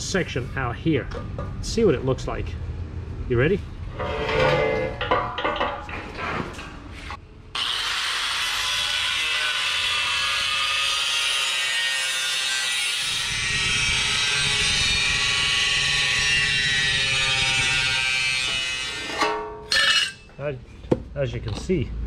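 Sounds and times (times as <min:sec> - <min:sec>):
angle grinder cutting sheet metal: 0:07.6 - 0:20.2.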